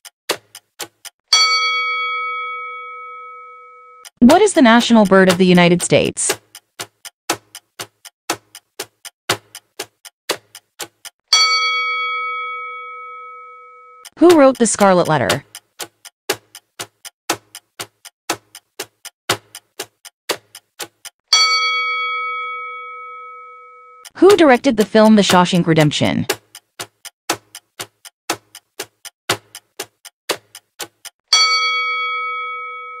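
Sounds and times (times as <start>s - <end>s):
clock ticking: 0.3s - 1.9s, 4.0s - 12.6s, 14.0s - 22.4s, 24.0s - 33.0s
bell-like chime: 1.4s - 4.0s, 11.4s - 14.0s, 21.4s - 24.0s, 31.3s - 33.0s.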